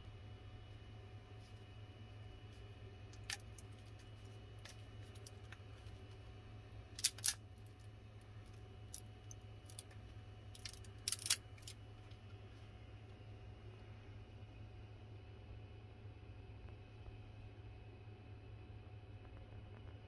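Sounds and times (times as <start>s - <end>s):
steady low hum: 0.0s - 20.0s
plastic part clicking and crackling: 3.1s - 6.1s, 7.0s - 7.9s, 8.5s - 11.8s.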